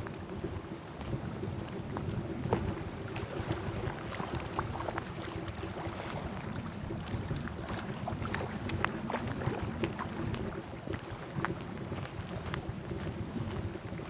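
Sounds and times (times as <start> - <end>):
small clicks and ticks: 0.0 - 3.3
wind rumbling on microphone: 0.0 - 14.0.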